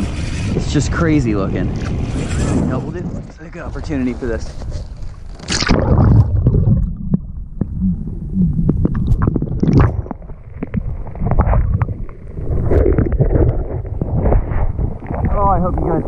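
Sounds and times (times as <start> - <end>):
water splash: 5.4 - 7.2
muffled underwater gurgling: 5.5 - 16.0.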